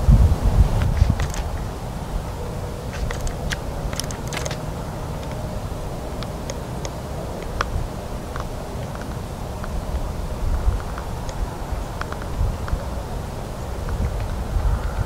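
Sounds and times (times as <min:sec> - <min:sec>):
wind rumble on microphone: 0:00.0 - 0:15.0
light clicks and ticks: 0:02.9 - 0:04.6.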